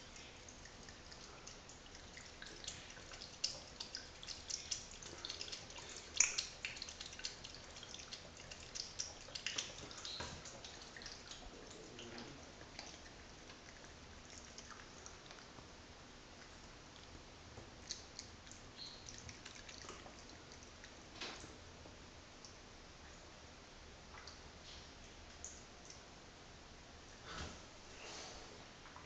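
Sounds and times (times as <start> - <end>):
water trickling from a tap: 0.0 - 15.5, 17.8 - 21.0
cat lapping water: 0.0 - 15.7, 16.3 - 21.0.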